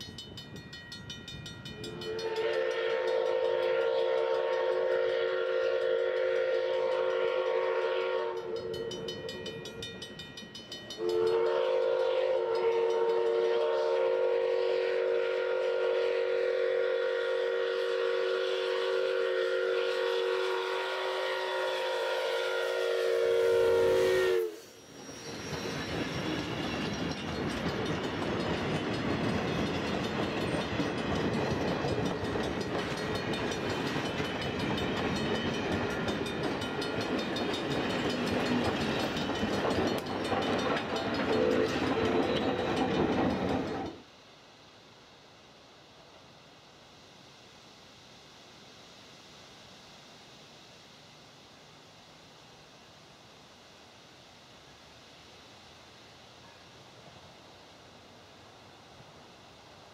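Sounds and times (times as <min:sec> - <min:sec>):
steam locomotive chime whistle: 0:00.0 - 0:44.0
train wheels rumbling on rails: 0:00.0 - 0:44.1.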